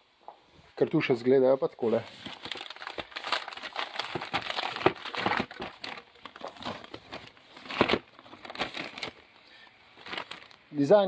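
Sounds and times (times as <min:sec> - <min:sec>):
paper and cardboard crinkling: 0:01.8 - 0:09.3, 0:10.0 - 0:10.7.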